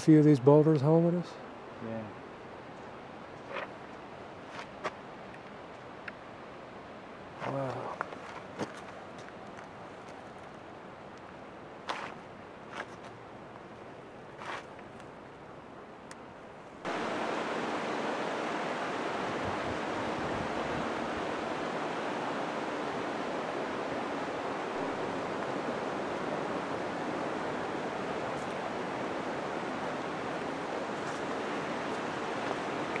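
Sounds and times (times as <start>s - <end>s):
steady rushing noise: 16.8s - 33.0s.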